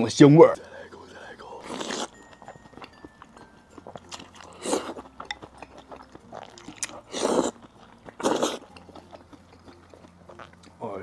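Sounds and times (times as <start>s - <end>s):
person slurping food: 1.6s - 2.2s, 3.8s - 10.6s
chewing with wet mouth clicks: 1.6s - 10.8s.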